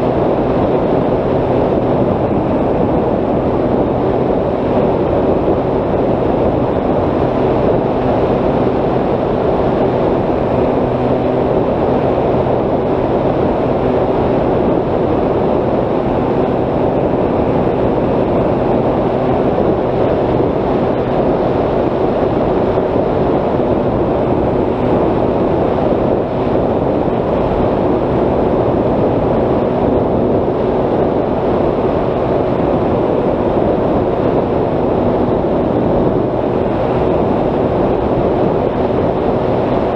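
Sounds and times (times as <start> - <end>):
wind rush on microphone: 0.0 - 39.9.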